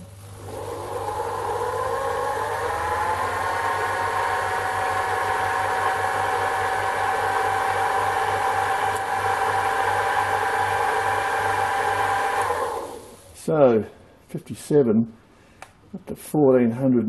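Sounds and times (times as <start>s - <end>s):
lathe motor whine: 0.2s - 13.3s.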